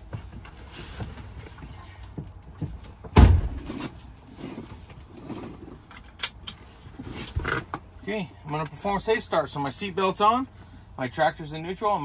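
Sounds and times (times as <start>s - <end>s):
truck door slamming shut: 3.1s - 3.8s.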